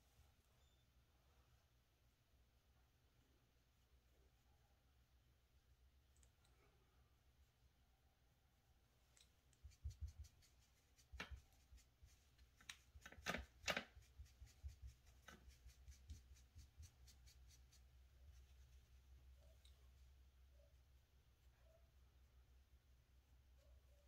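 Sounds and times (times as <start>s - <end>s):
brush on eyeshadow palette: 9.2s - 21.9s
makeup clicks and taps: 12.6s - 14.1s.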